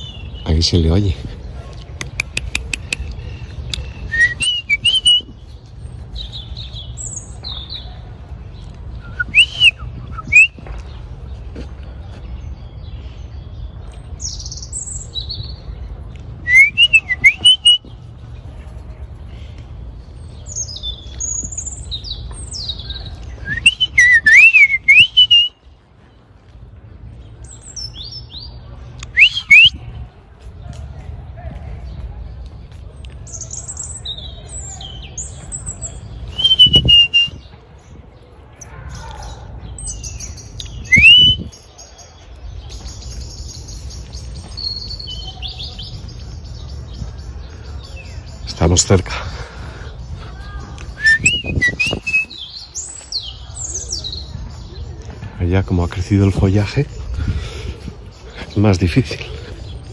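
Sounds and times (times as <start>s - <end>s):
robin singing: 0.0s - 18.5s, 19.1s - 26.4s, 27.0s - 30.0s, 33.0s - 59.9s.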